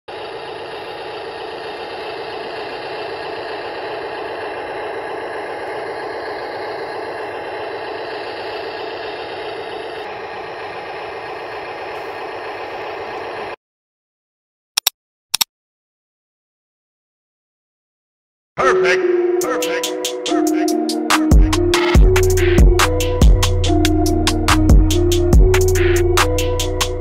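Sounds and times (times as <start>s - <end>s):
toy wheel loader mechanical noise: 0.0s - 13.6s.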